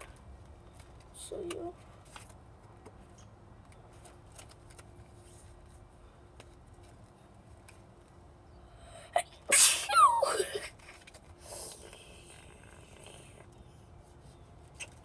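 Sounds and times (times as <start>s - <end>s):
person sneezing: 9.2s - 10.7s.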